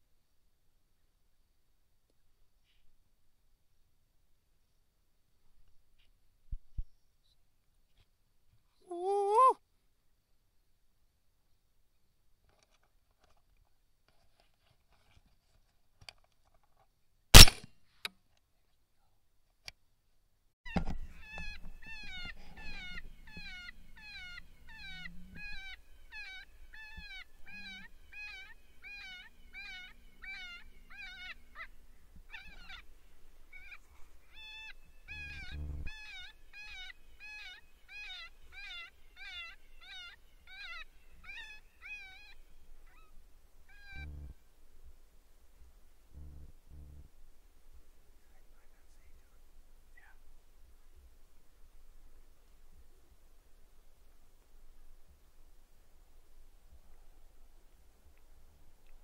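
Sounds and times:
electronic mewing distress cries: 0:35.1 - 0:36.2, 0:43.8 - 0:44.3.

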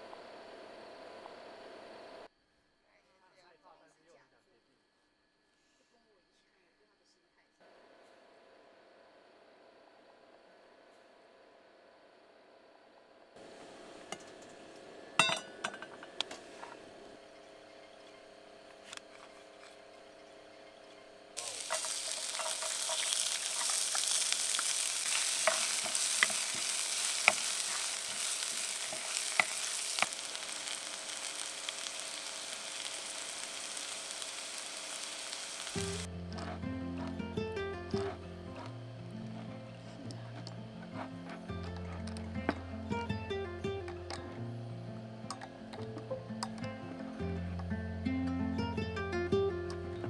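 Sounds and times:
garlic sizzling in hot oil: 0:21.4 - 0:38.3.

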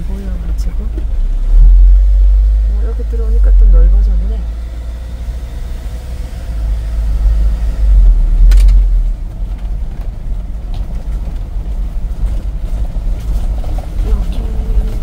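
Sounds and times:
van engine and road noise: 0:00.0 - 0:15.0
sharp click: 0:08.4 - 0:08.9.

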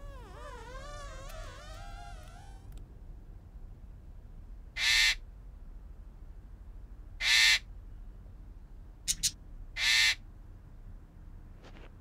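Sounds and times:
bird squawking: 0:04.8 - 0:05.2, 0:07.2 - 0:07.6, 0:09.1 - 0:10.2.

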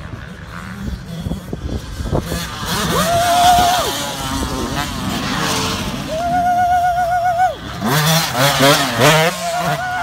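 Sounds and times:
dirt bike engine revving: 0:00.0 - 0:10.0.

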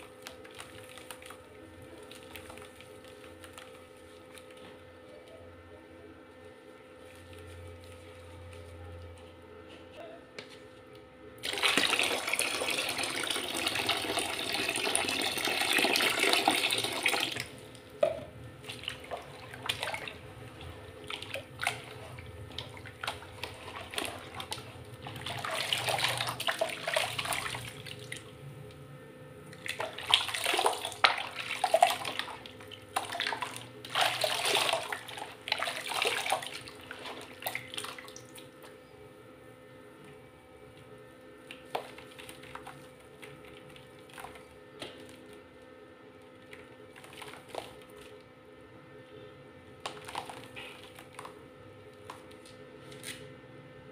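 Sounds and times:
water pouring into basin: 0:11.4 - 0:17.6, 0:21.1 - 0:28.2, 0:29.6 - 0:38.3.

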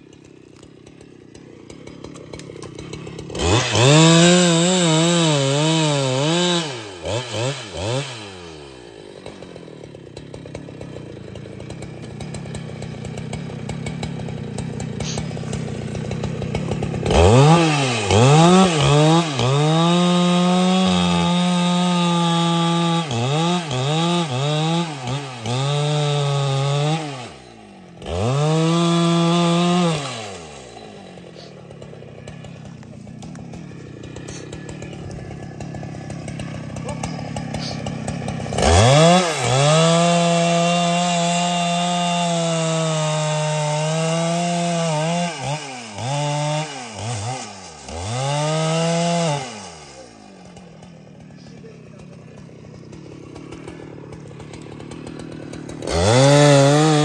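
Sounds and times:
chainsaw cutting wood: 0:00.0 - 0:57.0
chainsaw throttle blips: 0:00.0 - 0:57.0.

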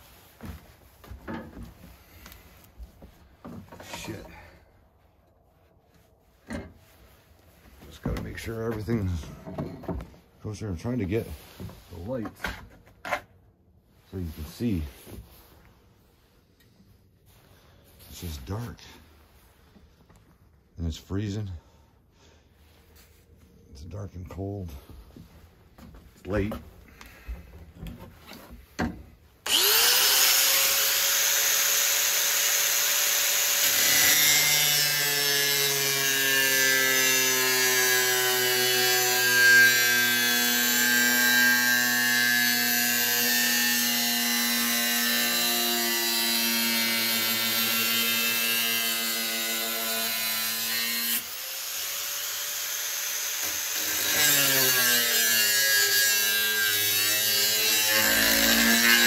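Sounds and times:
power tool cutting: 0:29.4 - 0:59.0.

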